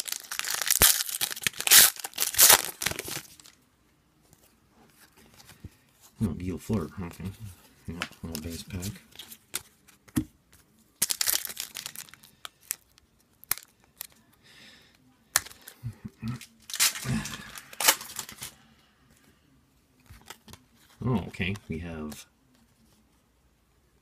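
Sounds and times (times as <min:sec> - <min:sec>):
card pack wrapper tearing: 0:00.0 - 0:03.5, 0:11.0 - 0:14.2, 0:16.6 - 0:18.5
wrapper rustling: 0:00.0 - 0:03.6, 0:11.0 - 0:14.2, 0:16.6 - 0:18.6.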